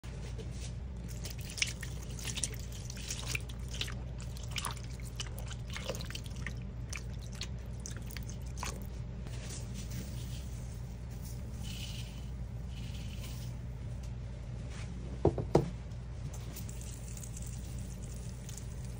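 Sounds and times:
liquid splashing and dripping: 1.0 - 9.0
bubbles crackling and popping: 1.1 - 9.0.

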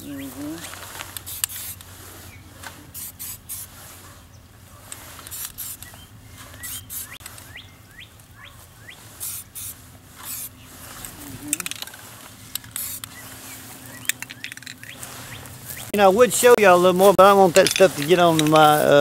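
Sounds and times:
small bird chirping: 0.0 - 0.6, 5.4 - 11.9, 12.6 - 16.0
spray-paint can hissing: 1.1 - 1.9, 2.9 - 3.8, 4.9 - 6.0, 6.6 - 7.4, 9.1 - 15.0.

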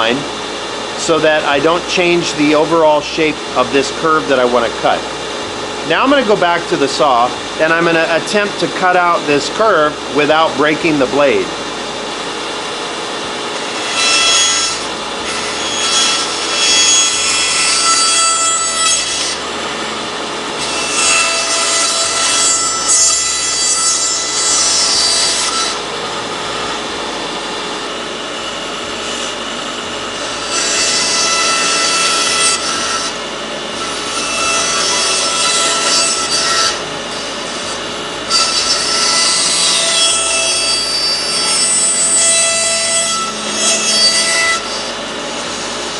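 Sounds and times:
bandsaw humming: 0.0 - 45.9
bandsaw cutting wood: 13.5 - 27.3, 28.4 - 45.9.

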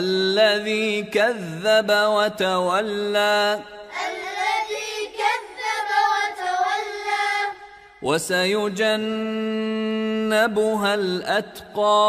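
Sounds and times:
man chanting: 0.0 - 3.9, 8.0 - 12.0.

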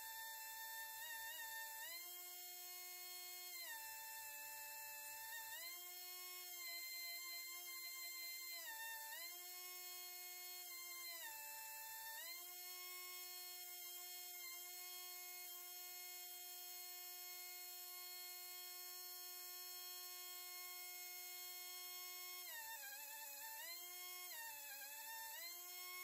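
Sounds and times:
pencil grinder high whine: 0.0 - 18.8, 19.8 - 26.0.

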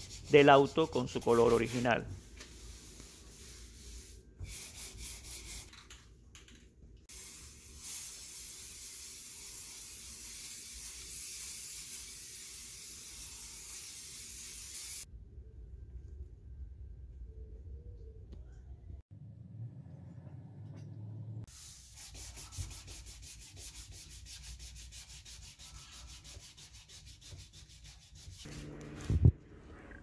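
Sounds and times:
aerosol can spraying: 7.1 - 15.1.

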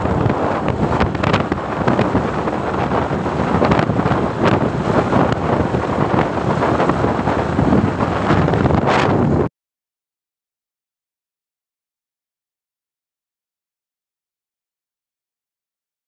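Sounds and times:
vehicle ride rumble: 0.0 - 9.5
wind buffeting microphone: 0.0 - 9.5.

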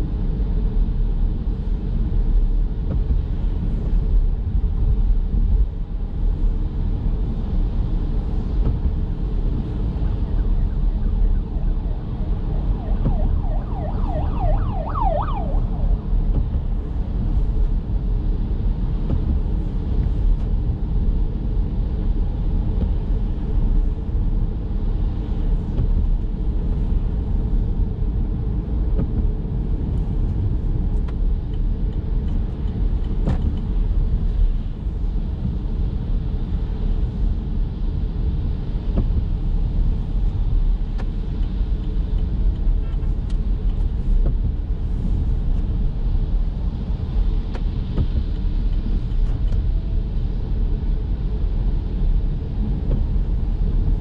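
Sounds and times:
car tyre rumble on wet road: 0.0 - 54.0
siren pitch sweeps: 10.2 - 16.3.

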